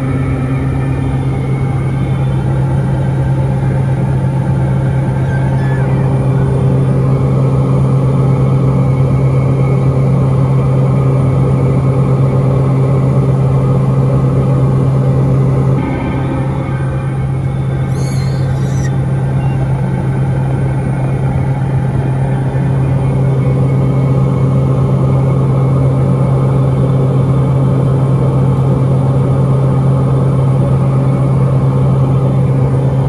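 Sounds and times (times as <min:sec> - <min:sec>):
turboprop aircraft cabin drone: 0:00.0 - 0:33.0.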